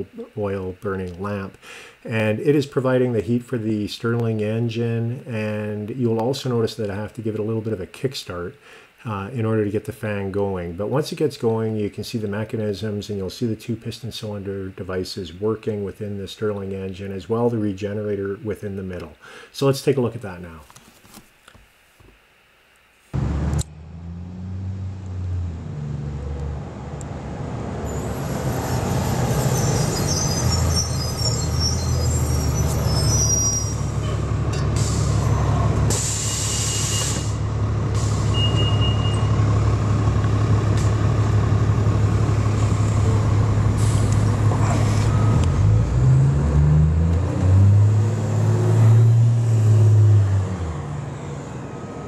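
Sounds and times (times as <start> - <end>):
outdoor background noise: 0.0 - 52.0
vehicle engine running: 23.2 - 28.0, 37.3 - 46.0.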